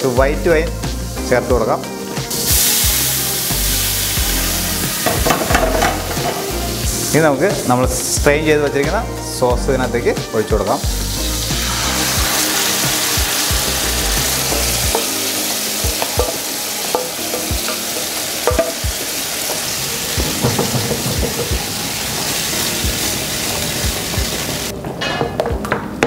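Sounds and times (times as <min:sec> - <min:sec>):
sauce sizzling in a frying pan: 0:00.0 - 0:24.8.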